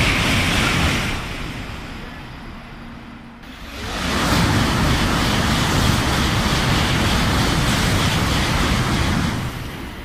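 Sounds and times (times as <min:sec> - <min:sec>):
high-speed train passing: 0:00.0 - 0:10.0.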